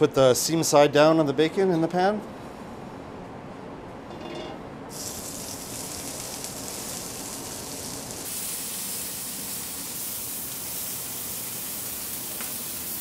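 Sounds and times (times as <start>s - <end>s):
meat sizzling in a skillet: 4.9s - 13.0s.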